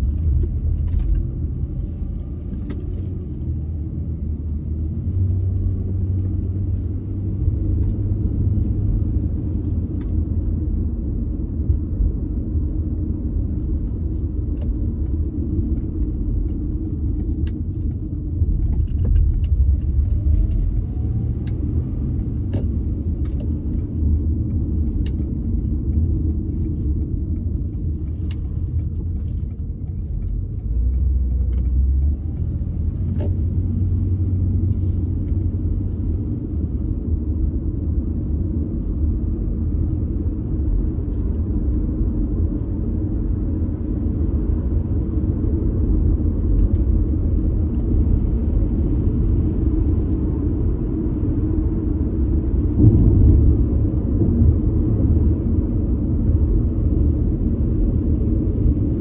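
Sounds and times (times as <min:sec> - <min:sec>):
car driving road and engine noise: 0:00.0 - 0:59.0.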